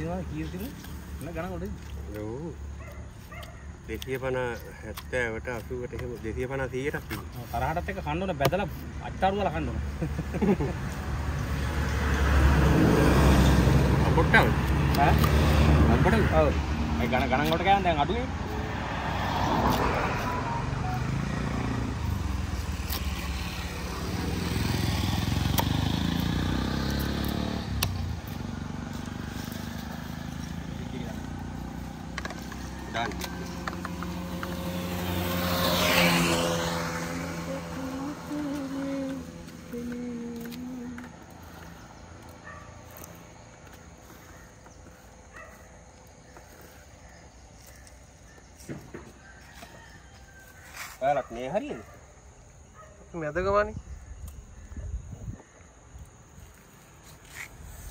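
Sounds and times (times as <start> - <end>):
faint outdoor ambience: 0.0 - 57.9
vehicle engine passing: 9.0 - 50.5.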